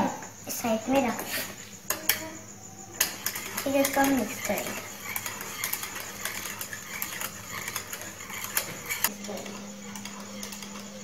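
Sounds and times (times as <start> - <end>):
steady low hum: 0.0 - 11.0
whisk scraping saucepan: 2.9 - 11.0.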